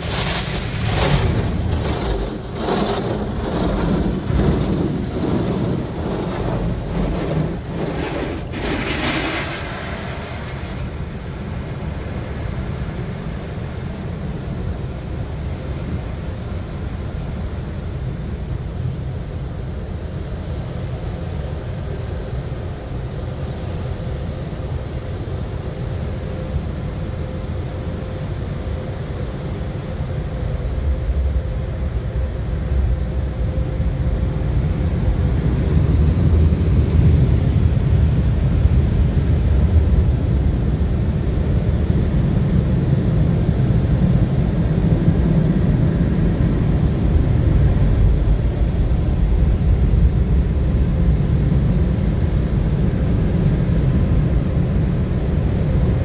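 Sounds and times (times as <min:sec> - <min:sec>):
car wash dryer blowing air: 0:00.0 - 0:16.7.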